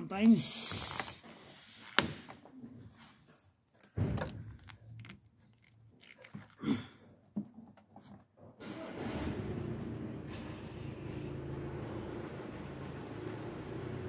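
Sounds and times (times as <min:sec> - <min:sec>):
things being handled: 0:00.0 - 0:08.6.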